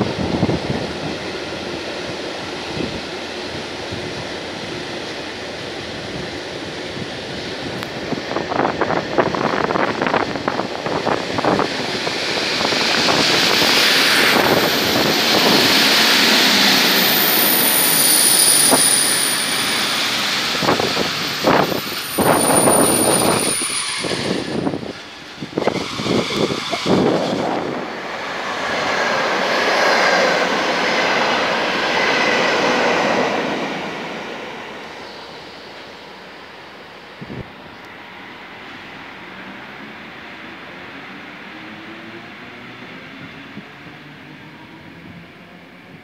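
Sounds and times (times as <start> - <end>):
train rushing past: 0.0 - 46.0
thin high whistle: 16.8 - 20.0, 21.9 - 24.6.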